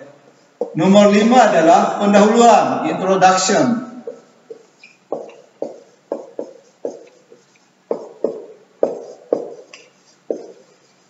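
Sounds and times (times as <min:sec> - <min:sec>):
marker pen tapping on whiteboard: 0:00.6 - 0:00.8, 0:04.0 - 0:11.0.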